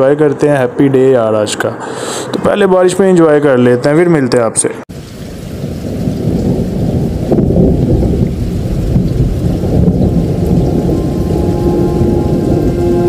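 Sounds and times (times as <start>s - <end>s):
steady rain: 4.9s - 13.0s
low rumble of thunder: 5.2s - 13.0s
soft music with held notes: 10.6s - 13.0s.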